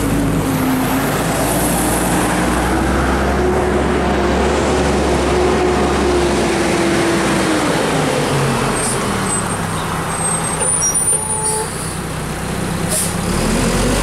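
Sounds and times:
short high squeals: 0:10.2 - 0:12.0.

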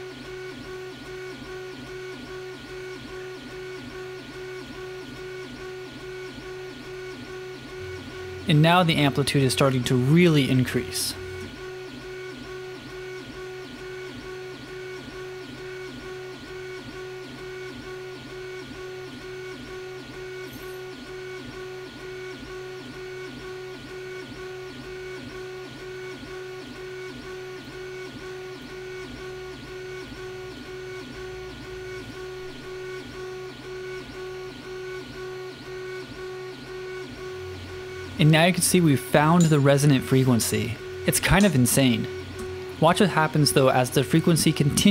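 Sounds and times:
stepper motor whining: 0:36.4 - 0:44.9.

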